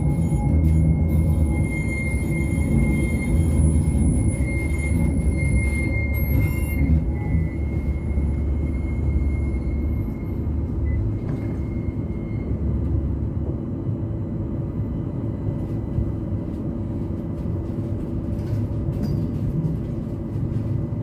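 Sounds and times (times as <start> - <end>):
high-pitched wheel squeal: 0.0 - 12.8
tram rumbling along track: 0.0 - 21.0.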